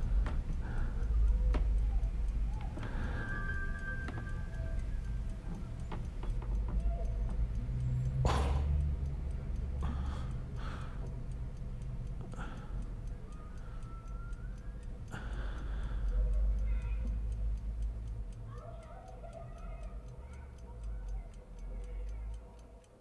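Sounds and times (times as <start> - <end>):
person breathing: 0.0 - 1.3, 2.6 - 3.8, 9.8 - 11.2, 12.3 - 13.9, 15.1 - 16.5
soft ticking: 0.0 - 23.0.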